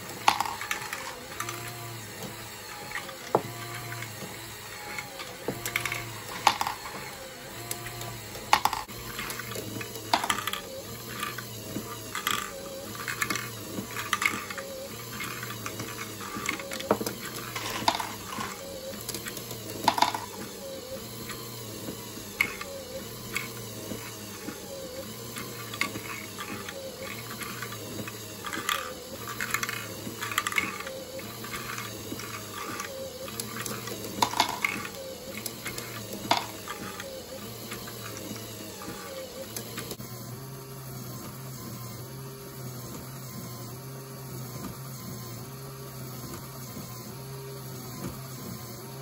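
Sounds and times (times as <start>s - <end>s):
plastic balls clicking: 0.1s - 1.7s, 5.0s - 7.0s, 7.7s - 11.4s, 12.0s - 20.4s, 25.4s - 37.0s.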